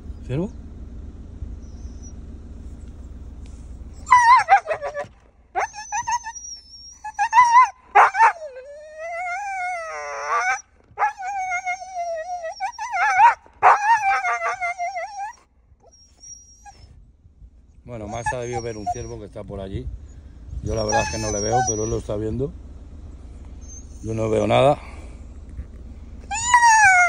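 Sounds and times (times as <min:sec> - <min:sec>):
dog howling and whining: 0:04.0 - 0:16.9, 0:18.0 - 0:19.2, 0:20.6 - 0:22.1, 0:23.6 - 0:24.1, 0:26.2 - 0:27.0.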